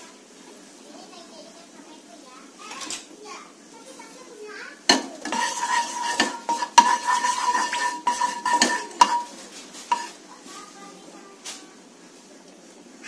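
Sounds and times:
wooden spatula scraping frying pan: 4.9 - 10.2.

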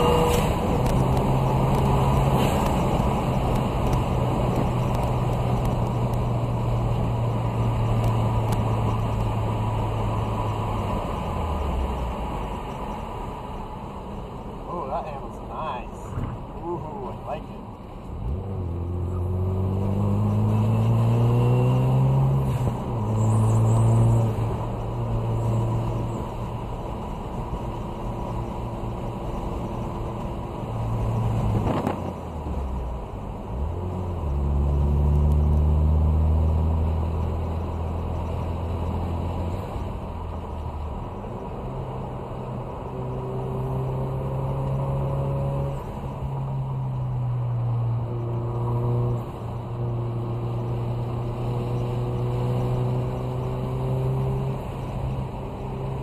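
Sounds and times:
car engine accelerating: 16.0 - 56.0.

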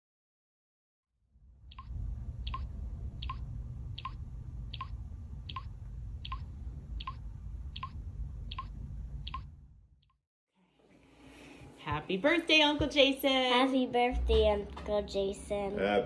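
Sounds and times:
sharp ticks: 1.7 - 3.4, 4.0 - 7.2, 7.8 - 8.7, 9.3 - 9.5.

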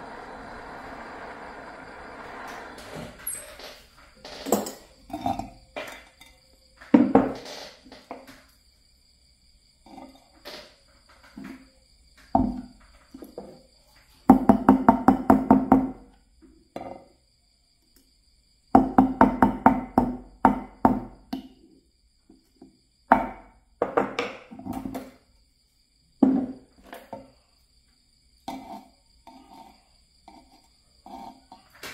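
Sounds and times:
rapid knocking on wooden block: 14.3 - 16.0.

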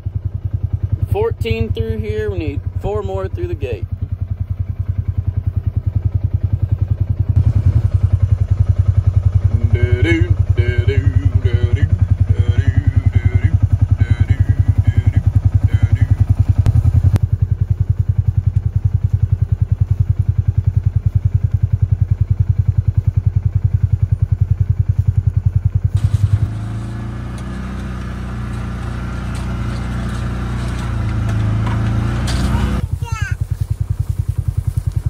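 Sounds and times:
engine idling with rapid chug: 0.0 - 35.0
steady engine drone: 0.0 - 35.0.

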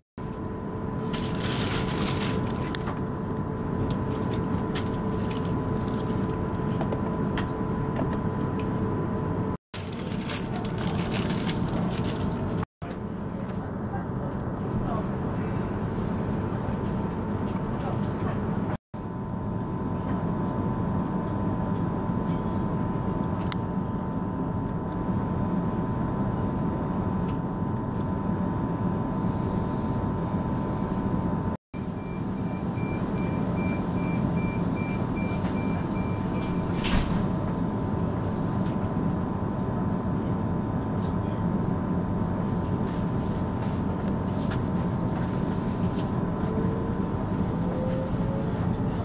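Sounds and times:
train equipment hum: 0.2 - 18.7
door warning beeps: 31.9 - 37.0.

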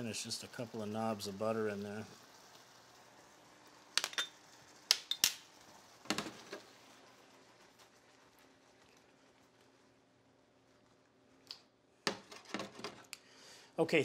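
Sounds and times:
sauce simmering: 0.0 - 12.0.

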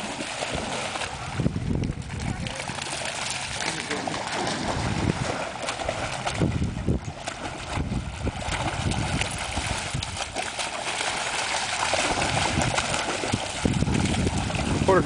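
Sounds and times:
dogs splashing through water: 0.0 - 15.0
low rumbling noise: 0.0 - 15.0.

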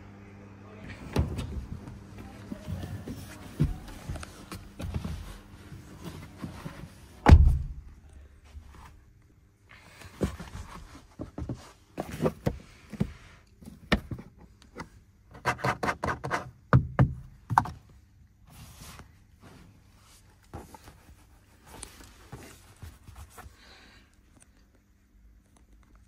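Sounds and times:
loud thump in a car: 7.2 - 7.9
knocks and taps on car trim: 15.5 - 17.8.

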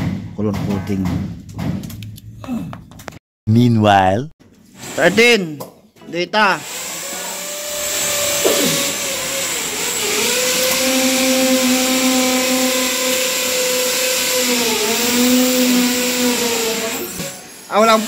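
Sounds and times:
loud electric motor running: 6.5 - 18.0.

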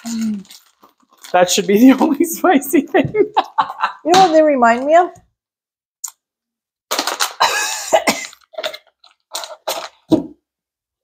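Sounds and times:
person coughing: 7.4 - 8.4.

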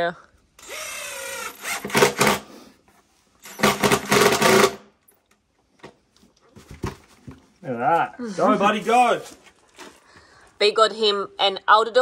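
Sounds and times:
power drill driving a screw: 0.6 - 2.5, 3.4 - 4.8.

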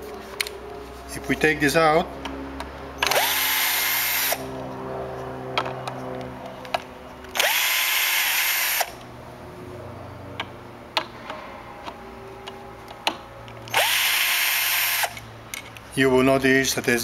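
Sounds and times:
electric drill motor whirring: 3.0 - 4.7, 6.8 - 9.1, 13.6 - 15.3.

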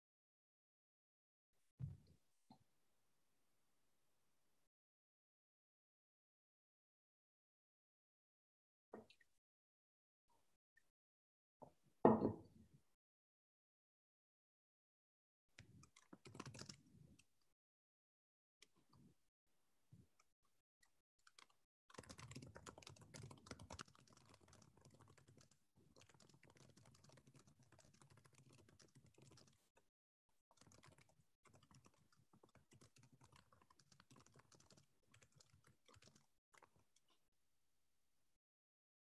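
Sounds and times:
faint keyboard typing: 15.6 - 17.3, 21.2 - 29.8, 30.5 - 37.2.

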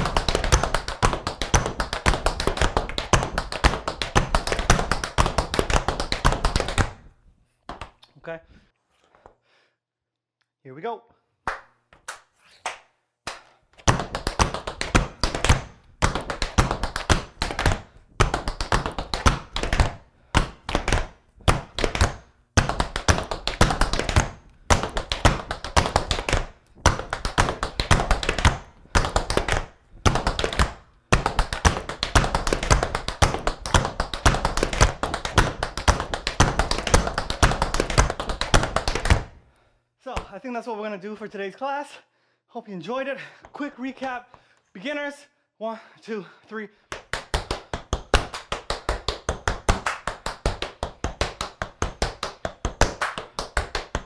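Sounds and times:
tap shoes on wooden floor: 0.0 - 7.1, 13.8 - 39.4.

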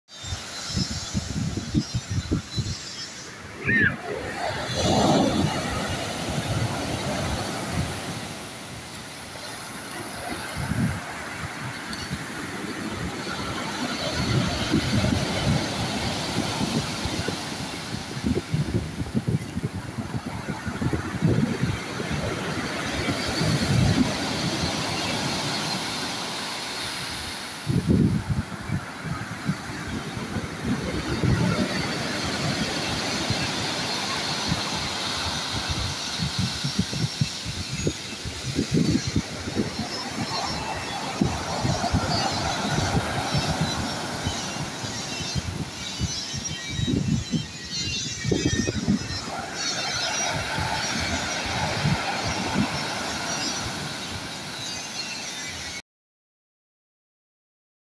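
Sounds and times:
wind rumbling on microphone: 0.2 - 55.8
waves washing over pebbles: 3.4 - 45.8.

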